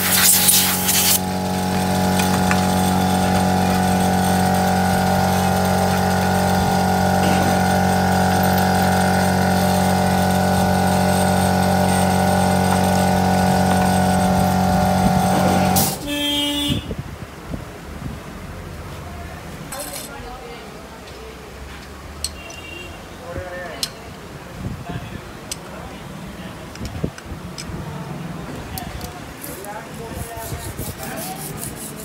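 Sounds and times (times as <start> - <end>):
electrical machine hum: 0.0 - 16.1.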